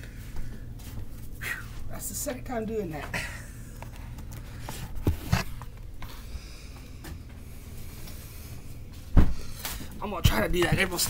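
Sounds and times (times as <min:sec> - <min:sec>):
steady low hum: 0:00.0 - 0:11.0
man breathing hard: 0:06.0 - 0:10.0.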